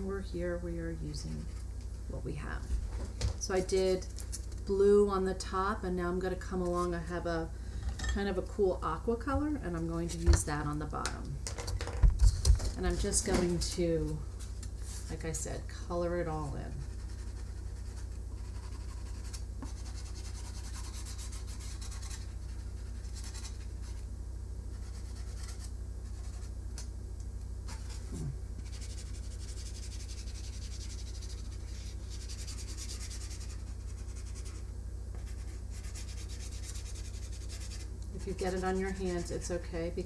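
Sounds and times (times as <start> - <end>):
steady low hum: 0.0 - 40.0
marker rubbing on foam: 16.7 - 24.0, 24.7 - 26.5, 27.7 - 39.5.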